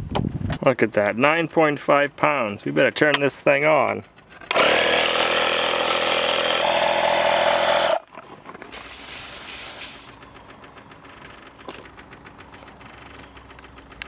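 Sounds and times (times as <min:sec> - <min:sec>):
tire inflator compressor running: 0:04.2 - 0:14.0
short hiss of air: 0:08.7 - 0:10.2.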